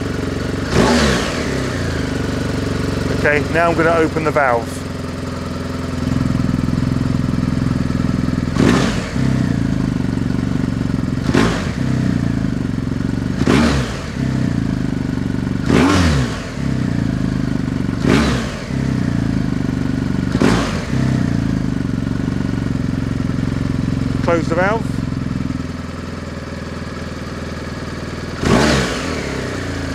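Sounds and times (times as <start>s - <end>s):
motorcycle engine revving: 0.0s - 29.9s.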